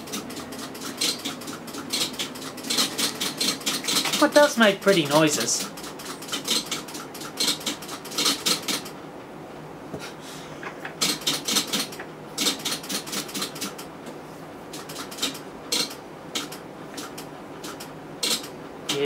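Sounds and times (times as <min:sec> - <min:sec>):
control cabinet clicking in bursts: 0:00.0 - 0:09.0, 0:10.8 - 0:13.9, 0:14.7 - 0:19.0.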